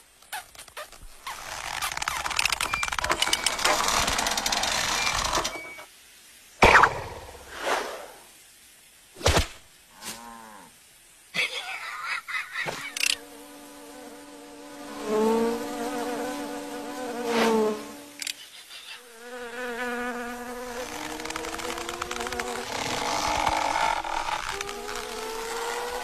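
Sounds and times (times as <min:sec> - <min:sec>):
cartoon insect buzzing: 0:19.2 - 0:26.0.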